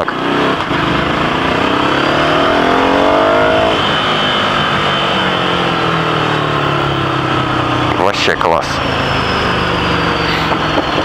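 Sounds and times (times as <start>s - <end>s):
motorcycle engine accelerating: 0.0s - 8.0s.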